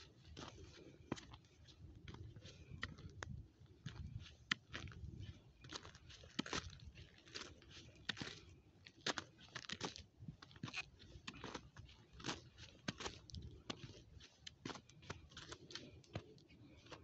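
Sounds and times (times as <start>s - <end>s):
footsteps crunching on snow: 3.8s - 17.0s.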